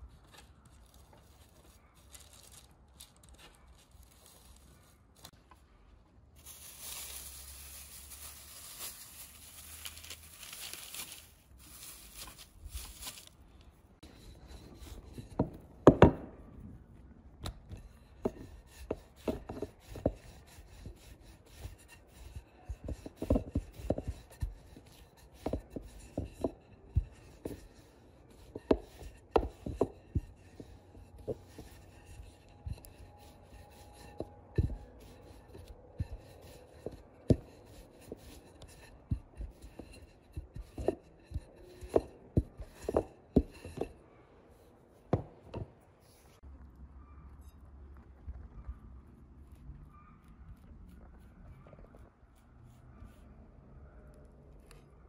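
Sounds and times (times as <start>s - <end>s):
rolling pin rolling dough: 14.0s - 16.4s, 17.6s - 46.4s.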